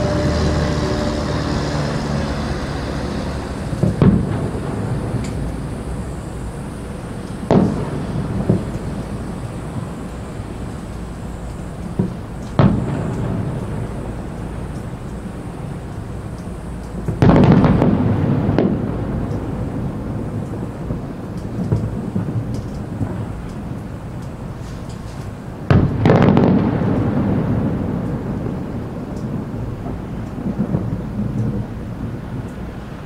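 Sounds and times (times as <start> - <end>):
firework booms with rolling rumble: 0.0 - 16.3, 17.0 - 32.4
small firework thuds: 3.7 - 5.4, 7.3 - 9.2, 11.9 - 13.8, 17.0 - 19.5.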